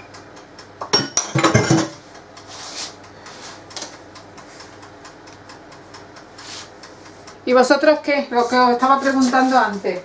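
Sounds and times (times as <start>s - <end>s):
dishes and cutlery clattering: 0.9s - 2.0s
soft sliding and scraping: 2.5s - 3.6s, 8.9s - 9.8s.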